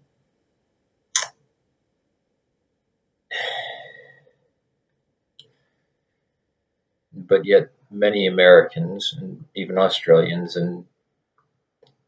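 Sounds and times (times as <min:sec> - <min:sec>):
man sighing: 0:03.3 - 0:04.1.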